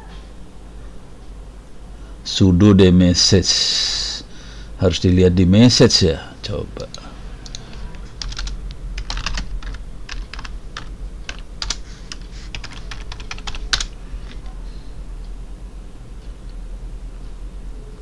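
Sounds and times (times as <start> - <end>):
keyboard typing: 7.4 - 14.5.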